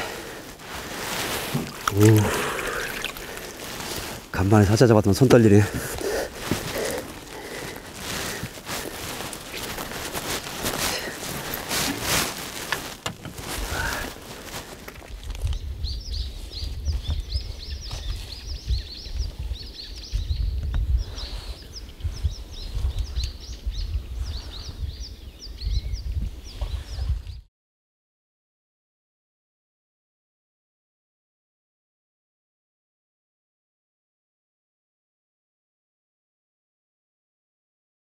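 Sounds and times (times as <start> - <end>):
water splashing and sloshing: 0.1 - 4.4, 5.8 - 15.6
small birds chirping: 1.8 - 27.5.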